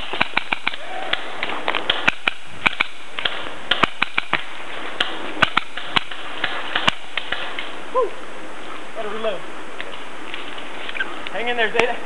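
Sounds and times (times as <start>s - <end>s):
paintball markers firing: 0.0s - 7.7s.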